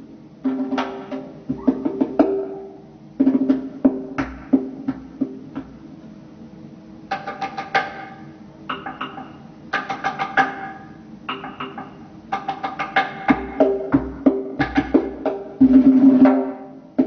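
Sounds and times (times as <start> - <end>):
goblet drum played by hand: 0.5 - 5.6, 11.3 - 16.6.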